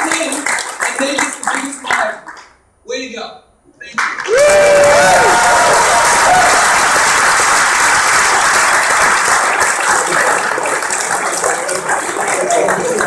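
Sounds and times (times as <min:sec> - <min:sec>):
audience applauding: 0:00.0 - 0:02.5, 0:04.0 - 0:13.0
voices whooping: 0:04.3 - 0:06.8.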